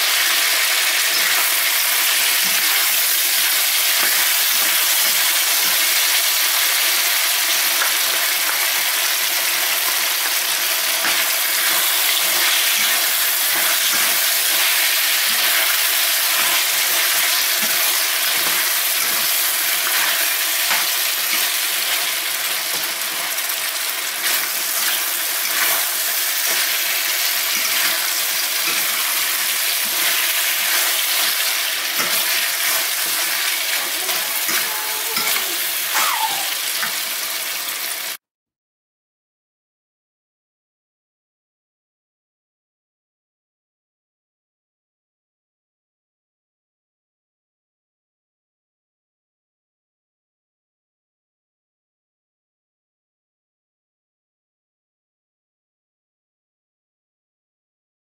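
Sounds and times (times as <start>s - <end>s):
food sizzling in a wok: 0.0s - 38.2s
metal spatula scraping pan: 11.0s - 23.4s, 24.2s - 36.0s.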